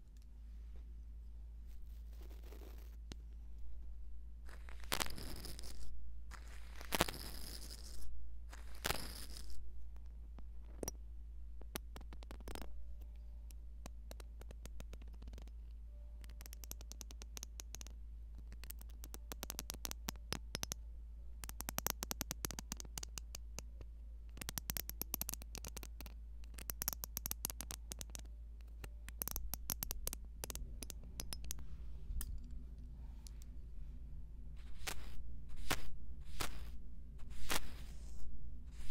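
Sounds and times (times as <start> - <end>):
steady low hum: 0.0 - 16.4, 17.0 - 38.9
scratchy crackling clicks: 4.5 - 10.9
brush swishing on microphone: 34.6 - 38.9.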